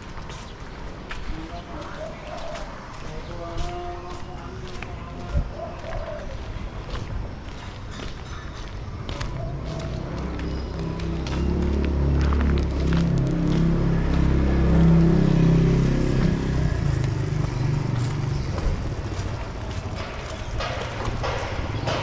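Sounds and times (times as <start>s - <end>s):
vehicle engine running: 10.1s - 22.0s.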